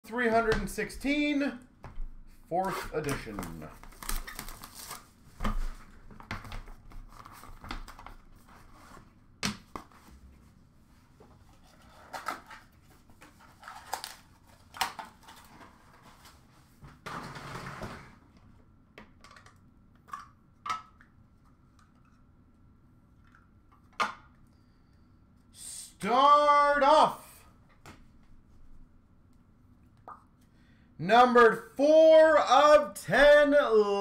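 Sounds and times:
wrappers rustling: 2.6s - 5.2s.

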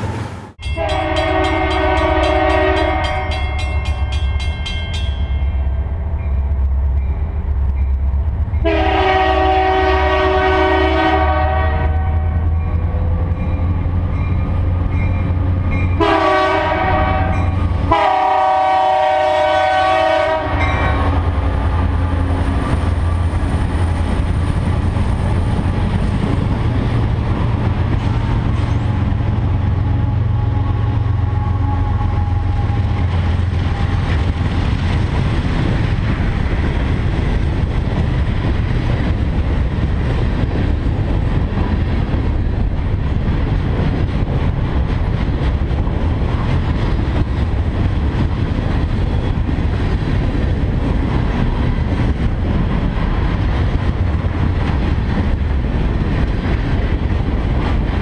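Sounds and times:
train wheels rumbling on rails: 0.0s - 58.0s
locomotive air horn: 0.6s - 3.6s, 8.6s - 12.4s, 16.0s - 21.2s, 29.8s - 33.0s
crossing bell ringing: 0.6s - 8.8s, 12.4s - 16.2s, 17.2s - 17.9s, 20.6s - 21.1s.

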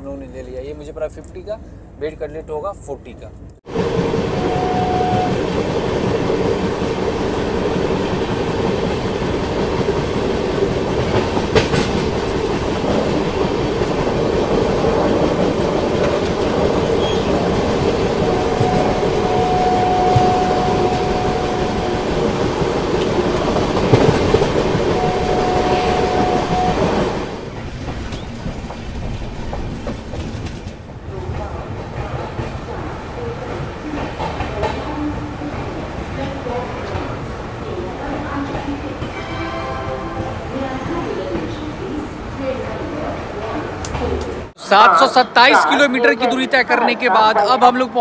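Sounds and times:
train wheels rumbling on track: 3.2s - 44.6s
train horn: 4.2s - 5.4s, 16.9s - 22.4s, 24.6s - 27.4s.

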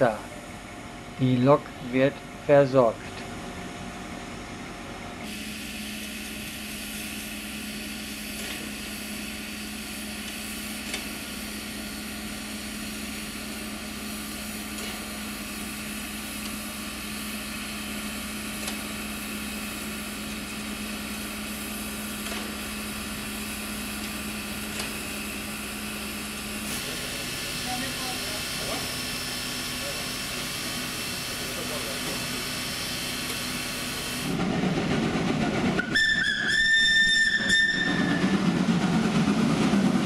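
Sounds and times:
steam hissing: 5.2s - 34.5s.

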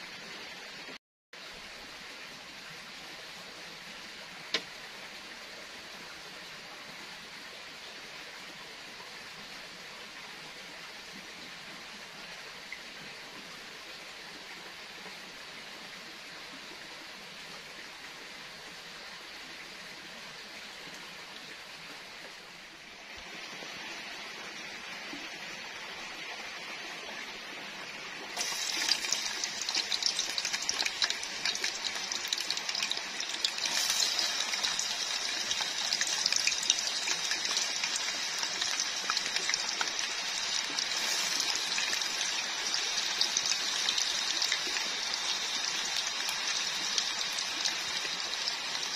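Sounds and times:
stream hissing: 18.6s - 48.9s
deep-frying sizzling and crackling: 28.4s - 48.9s.

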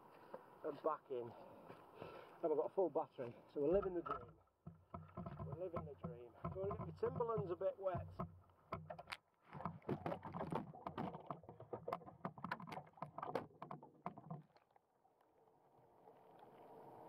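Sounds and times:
water splashing and clicks: 3.7s - 15.3s
boat motor hum underwater: 3.7s - 17.0s.

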